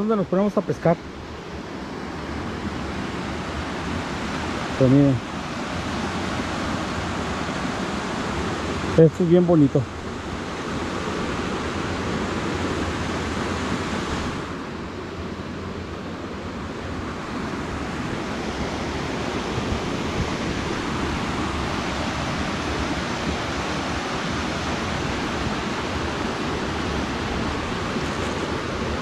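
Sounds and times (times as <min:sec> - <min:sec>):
water rushing over rocks: 0:00.0 - 0:15.7, 0:16.4 - 0:29.0.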